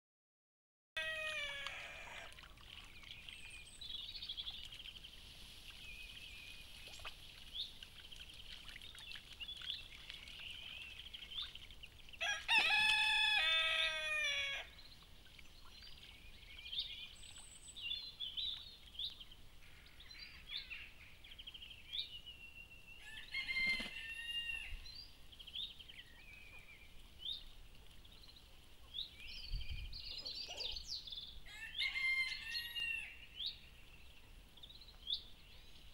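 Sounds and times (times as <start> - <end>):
rooster crowing: 1.0 - 2.3, 12.2 - 14.7, 23.0 - 24.7, 31.5 - 33.2
bird chirps: 28.1 - 31.4.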